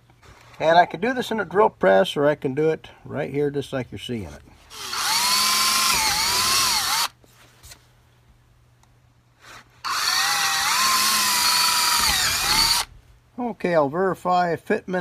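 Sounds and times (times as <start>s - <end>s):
power drill whine: 4.7s - 7.2s, 9.8s - 12.9s.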